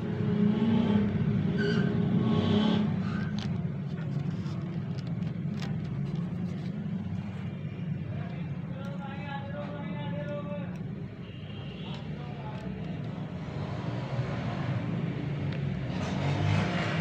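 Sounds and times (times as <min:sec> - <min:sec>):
low mechanical rumble: 0:00.0 - 0:16.1.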